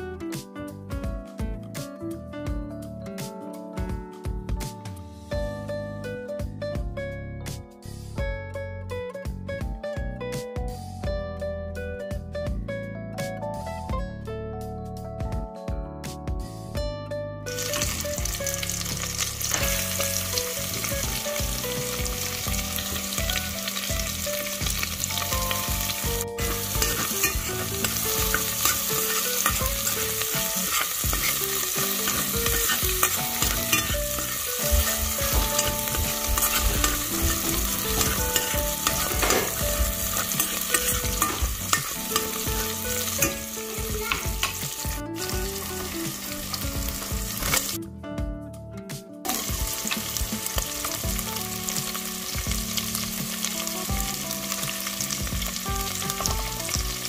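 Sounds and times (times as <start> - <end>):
food sizzling in a pan: 17.5 - 47.8, 49.3 - 57.0
utensil scraping pan: 26.4 - 44.9.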